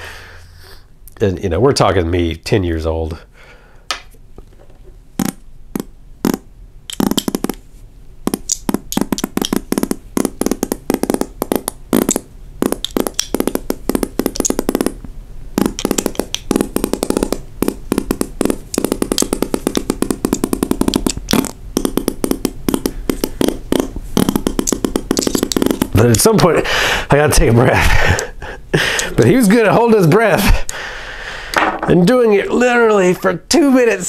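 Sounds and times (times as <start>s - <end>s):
person blowing fart noise: 5.1s - 26.9s.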